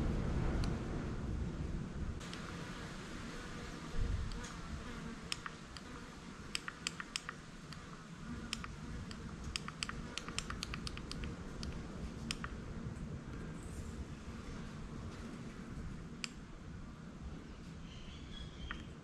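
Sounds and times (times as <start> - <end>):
push buttons clicking: 9.5 - 12.6.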